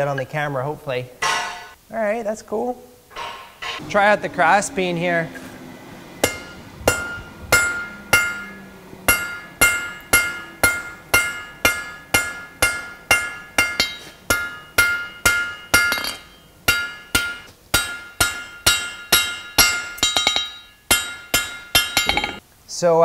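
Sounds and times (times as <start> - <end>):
hammer striking steel on anvil: 1.2 - 1.8, 3.1 - 4.0, 6.2 - 22.4.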